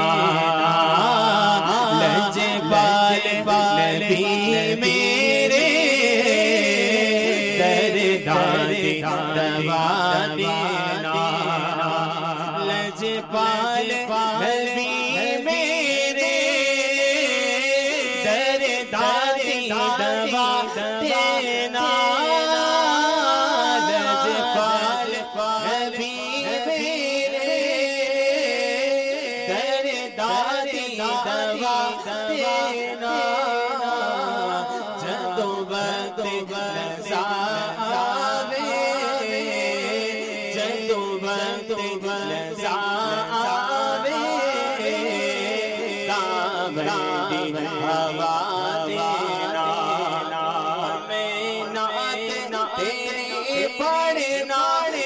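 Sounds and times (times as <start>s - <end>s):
man singing ornamented melody: 0.0s - 55.0s.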